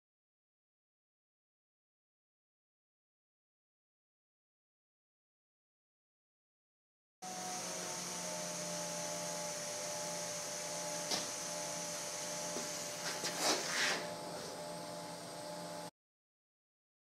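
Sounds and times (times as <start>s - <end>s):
welding machine humming: 7.2s - 15.9s.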